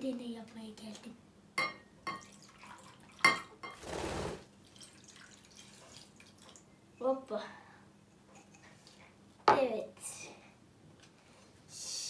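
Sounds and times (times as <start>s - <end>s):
faint water drips: 2.2s - 3.4s, 4.6s - 6.7s
water pouring into glass bowl: 2.2s - 3.5s, 4.6s - 6.6s.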